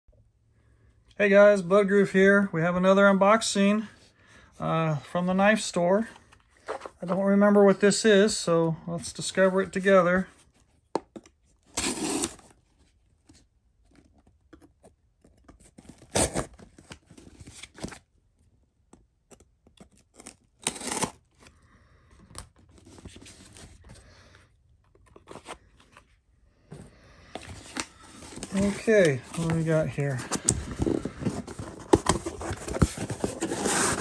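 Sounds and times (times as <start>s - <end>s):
packing tape ripping: 11.7s - 12.4s, 16.0s - 16.6s, 20.1s - 21.2s
cardboard box rustling: 26.8s - 34.0s.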